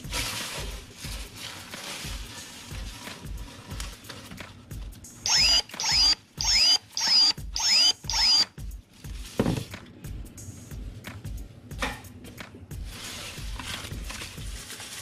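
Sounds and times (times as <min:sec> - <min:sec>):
electric pruning shears snipping: 0:05.3 - 0:08.5.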